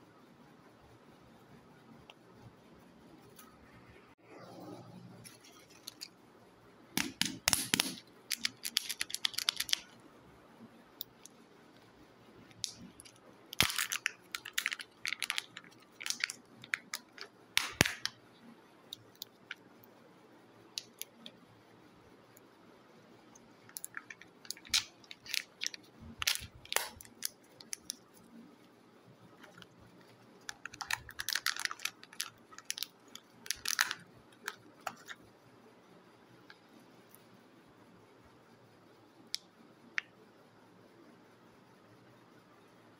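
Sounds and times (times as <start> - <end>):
plastic crinkling and clicking: 5.3 - 6.2, 7.0 - 10.0, 12.5 - 18.2, 20.8 - 21.4, 23.3 - 28.2, 29.3 - 35.2.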